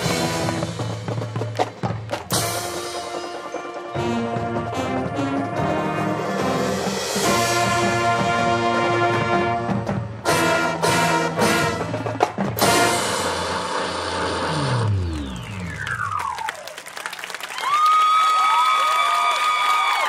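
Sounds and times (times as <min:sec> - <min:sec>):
marching band brass and percussion: 0:00.0 - 0:16.7
falling pitch sweep: 0:13.2 - 0:16.8.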